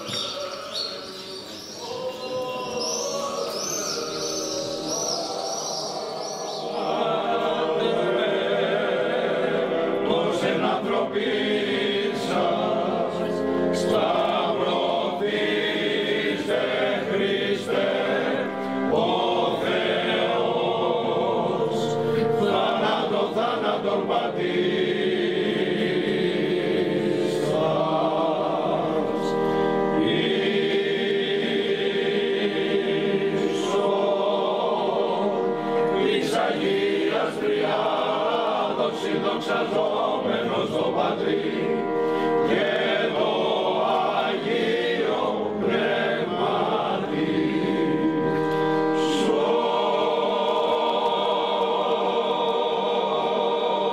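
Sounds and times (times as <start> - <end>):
choir chanting long notes: 0.0 - 53.9.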